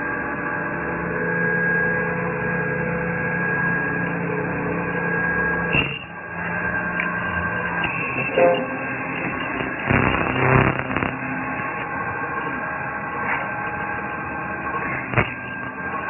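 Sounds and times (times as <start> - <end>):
metal spinning machine humming: 6.3 - 16.0.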